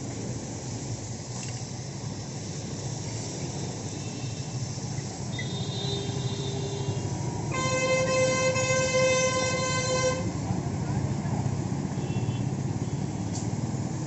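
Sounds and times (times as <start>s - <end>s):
hose water spraying: 0.0s - 9.7s
road traffic: 0.0s - 14.0s
vehicle horn: 5.3s - 10.4s, 12.0s - 13.0s.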